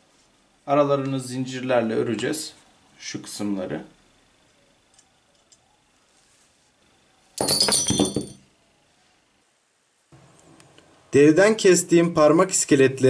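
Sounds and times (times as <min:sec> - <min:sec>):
metal rings clattering on table: 0:07.4 - 0:08.5.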